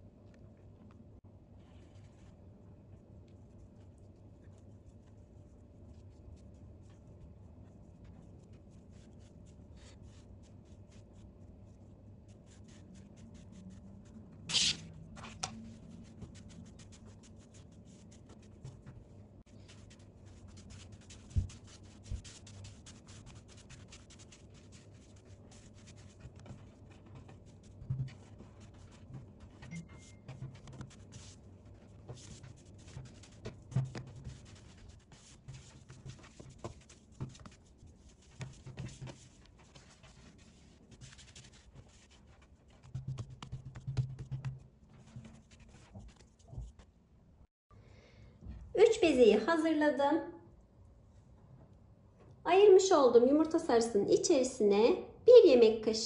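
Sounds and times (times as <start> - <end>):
hands rolling dough on wood: 3.0 - 47.0.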